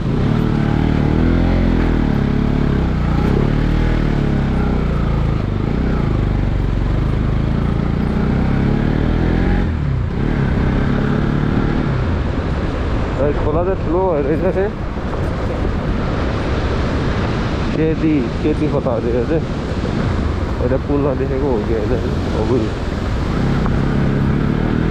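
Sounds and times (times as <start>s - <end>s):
motorcycle engine running: 0.0s - 13.1s.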